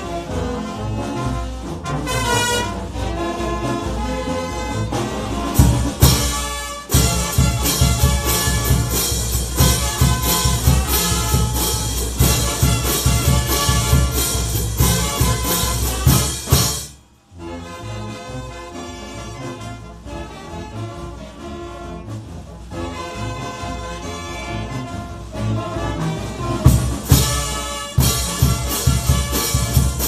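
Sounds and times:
trumpets and brass: 0.0 - 30.0
bass drum: 5.0 - 17.0, 26.4 - 30.0
snare drum: 5.0 - 17.0, 26.5 - 30.0.

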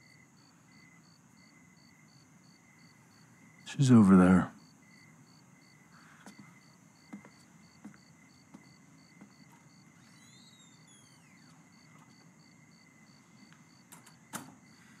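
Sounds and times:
cricket chirping: 0.0 - 15.0
high insect tone: 0.0 - 15.0
falling whistle-like call: 10.0 - 11.6.

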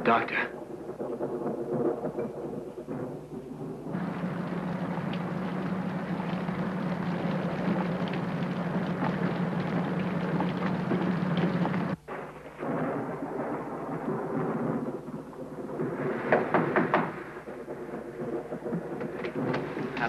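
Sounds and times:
heavy rain: 0.0 - 20.0
low rumble: 0.5 - 20.0
sharp knocks: 16.2 - 20.0.

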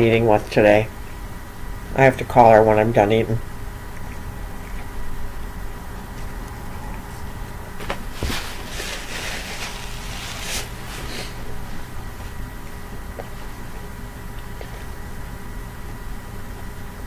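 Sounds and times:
paper rustling and crinkling: 7.8 - 11.4.

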